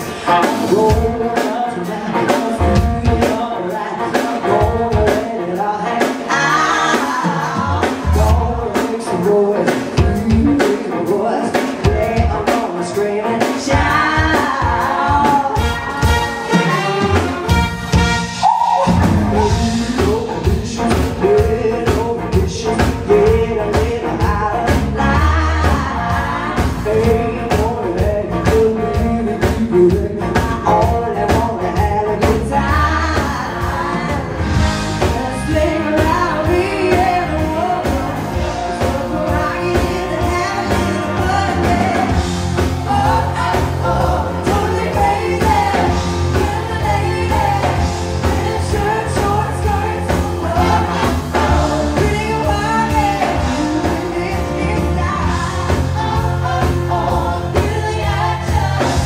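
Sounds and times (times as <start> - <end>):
live band playing: 0.0 - 59.0
person singing: 0.0 - 59.0
strong bass line: 15.6 - 59.0.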